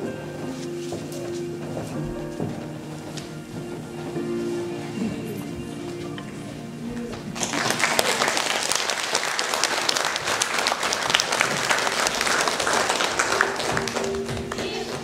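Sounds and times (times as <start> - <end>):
background music: 0.0 - 15.0
audience applause: 7.3 - 14.6.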